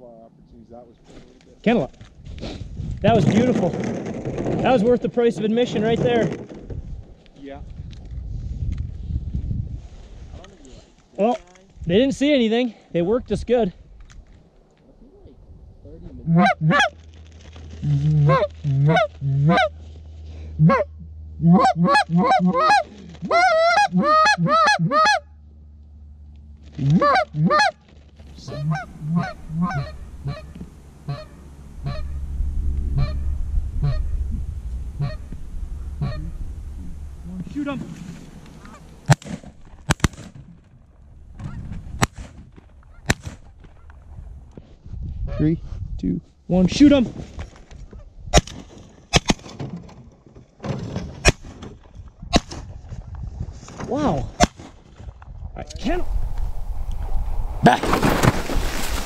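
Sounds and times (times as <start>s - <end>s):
goose honking: 17.8s - 19.8s, 20.6s - 25.2s, 26.8s - 39.1s
low rumble: 28.0s - 45.9s, 55.2s - 59.0s.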